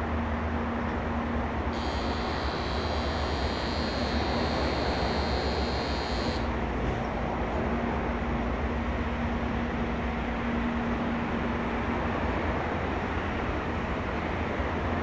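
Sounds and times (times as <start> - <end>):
electronic platform bell ringing: 1.8 - 6.5.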